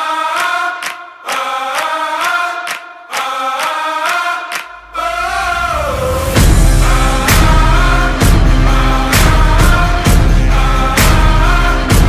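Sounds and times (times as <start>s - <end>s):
chant-like singing: 0.0s - 12.0s
deep bass: 5.3s - 12.0s.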